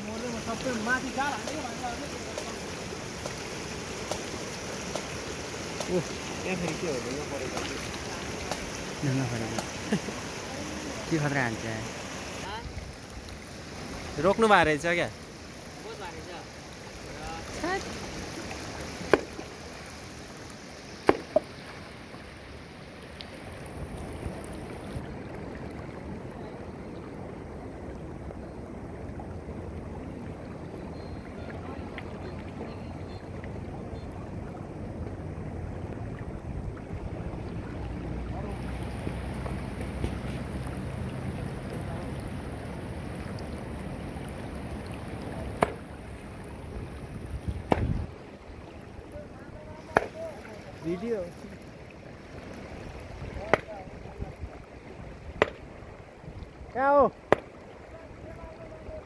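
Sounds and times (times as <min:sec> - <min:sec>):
river water rushing: 0:00.0 - 0:59.0
sledgehammer striking rock: 0:19.1 - 0:19.4, 0:47.7 - 0:48.0
sledgehammer striking boulder: 0:47.6 - 0:48.0.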